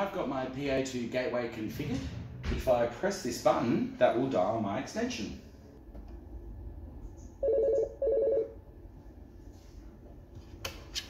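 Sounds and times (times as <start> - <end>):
desk phone ringing: 7.4 - 8.6.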